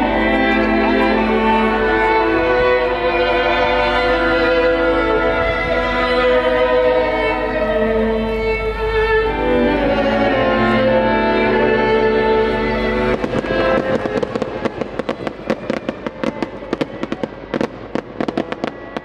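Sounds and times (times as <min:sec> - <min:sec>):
slow melody of long notes: 0:00.0 - 0:19.0.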